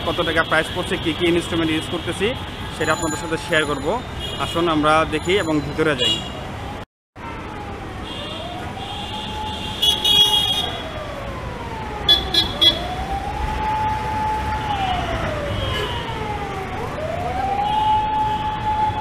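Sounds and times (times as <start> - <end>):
traffic noise: 0.0 - 19.0
siren wailing: 6.7 - 19.0.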